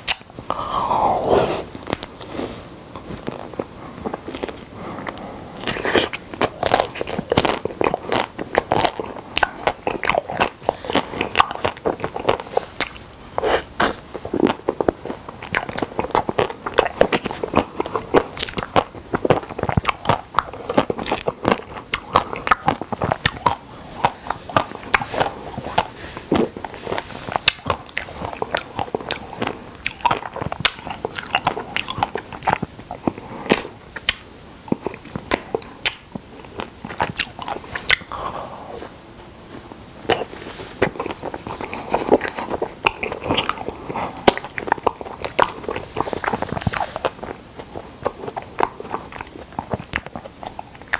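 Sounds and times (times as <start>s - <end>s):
chewing: 0.0s - 50.9s
ice cream coating crunching: 3.0s - 38.3s.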